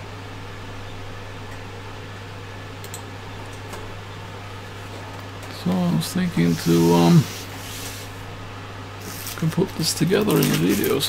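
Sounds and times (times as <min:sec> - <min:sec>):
electrical hum: 0:00.0 - 0:11.0
background hiss: 0:05.5 - 0:11.0.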